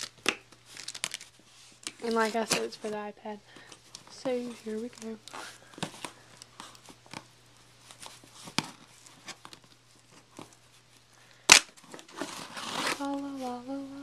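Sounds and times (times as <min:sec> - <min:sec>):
cardboard flap tearing: 0:11.5 - 0:13.2
person humming: 0:12.9 - 0:14.0.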